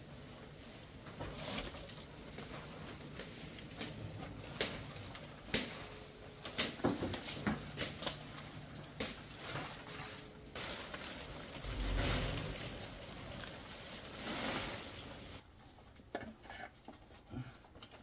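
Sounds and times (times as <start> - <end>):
twigs and leaves snapping: 1.6 - 14.0.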